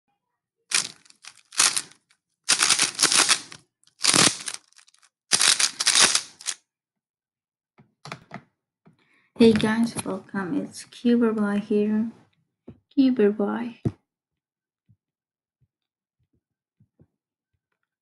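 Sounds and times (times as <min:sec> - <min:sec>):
plastic puzzle cube clacking: 0:00.7 - 0:06.6.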